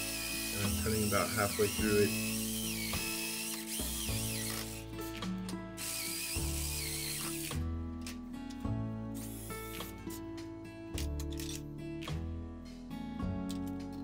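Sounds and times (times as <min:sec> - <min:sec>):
jigsaw cutting wood: 0:00.0 - 0:04.9, 0:05.8 - 0:07.6
background music with held notes: 0:00.0 - 0:14.0.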